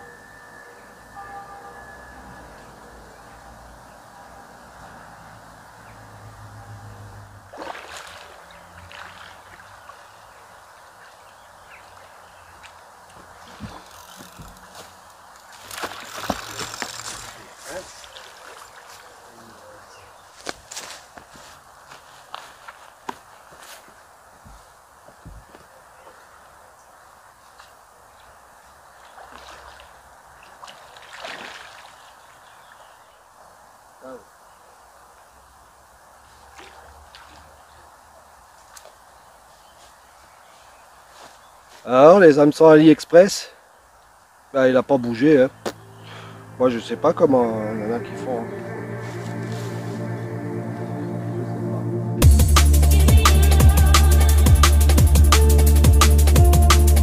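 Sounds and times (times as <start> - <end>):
running river water: 0.0 - 20.5, 21.7 - 50.2
splashing and rustling: 7.5 - 23.9, 28.8 - 32.9, 36.2 - 40.1.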